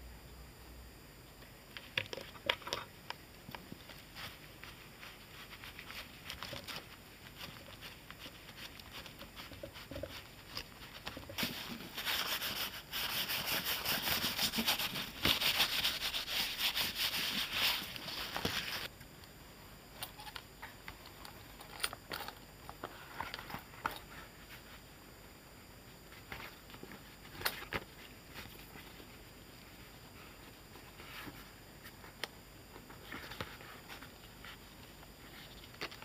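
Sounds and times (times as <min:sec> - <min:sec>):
leather rubbing and rustling: 0:03.8 - 0:18.9.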